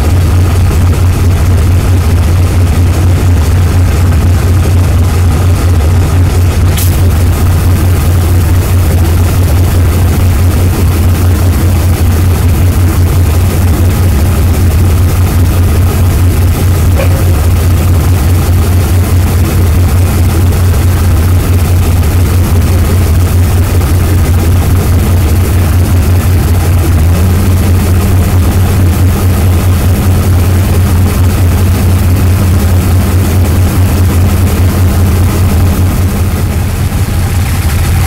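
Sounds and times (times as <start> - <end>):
diesel locomotive engine droning: 0.0 - 38.0.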